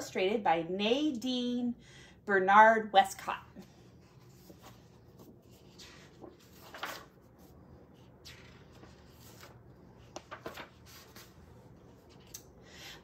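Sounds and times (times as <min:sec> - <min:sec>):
paper pages rustling: 0:03.6 - 0:12.4.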